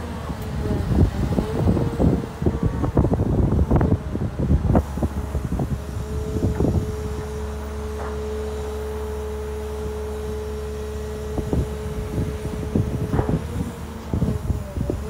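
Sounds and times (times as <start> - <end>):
diesel engine under load: 0.0 - 15.0
hydraulic whine: 0.0 - 15.0.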